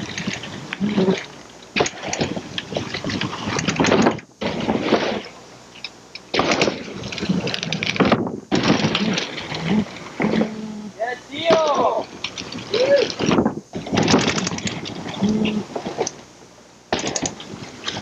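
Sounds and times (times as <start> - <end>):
wind on microphone: 6.7 - 10.6, 12.1 - 16.1.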